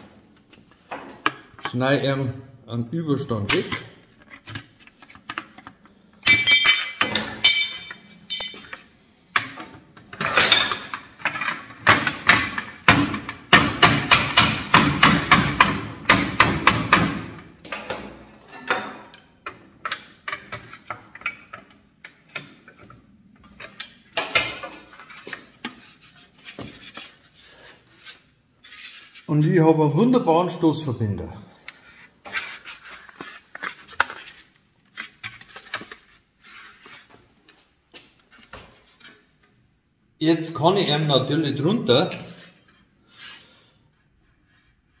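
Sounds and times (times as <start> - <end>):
hammer striking sheet metal: 11.9 - 17.4.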